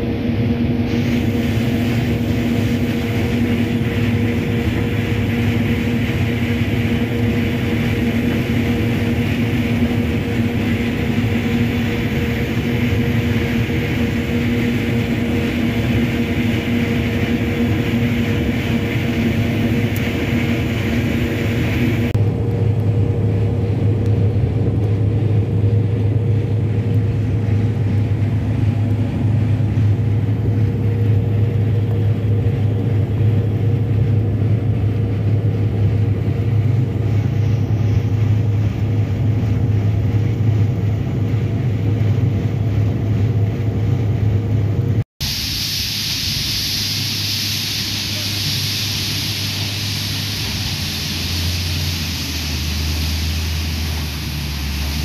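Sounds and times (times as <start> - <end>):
combine harvester running: 0.0 - 55.0
grain streaming into tank: 45.5 - 55.0.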